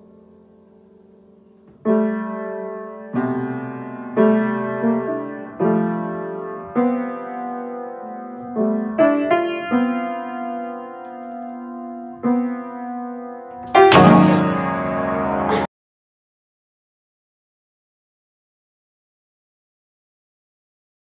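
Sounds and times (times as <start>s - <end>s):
piano notes ringing: 0.0s - 15.7s.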